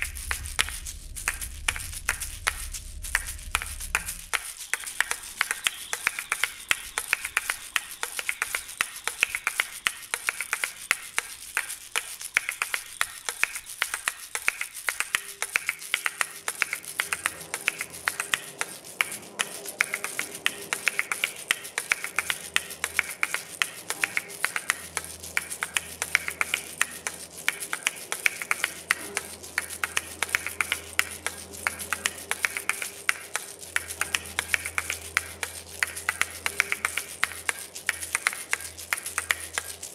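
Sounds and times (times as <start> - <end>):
steady tone: 0.0 - 4.5
low drone: 0.0 - 6.8, 16.2 - 39.9
high hiss: 0.0 - 39.9
rapid irregular clicks: 0.0 - 39.9.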